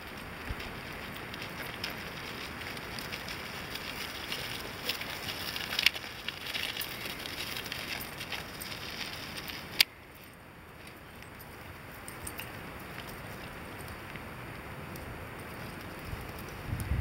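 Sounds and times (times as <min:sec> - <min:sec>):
footsteps on gravel: 0:00.0 - 0:11.7
small wheels crunching over gravel: 0:00.0 - 0:17.0.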